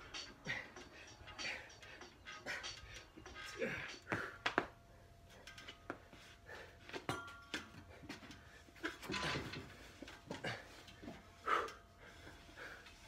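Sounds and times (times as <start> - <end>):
metal tower knocks and rattles: 8.9 - 10.5.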